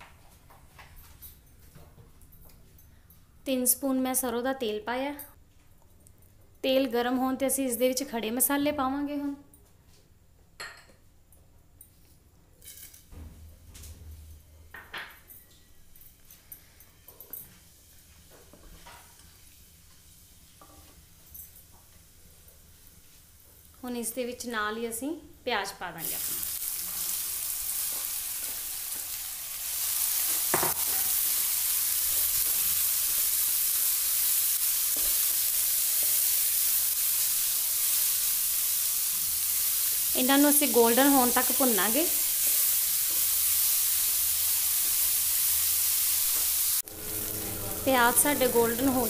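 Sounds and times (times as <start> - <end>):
onions sizzling in oil: 17.7 - 21.1, 25.9 - 49.0
spices rattling into pan: 26.0 - 46.8.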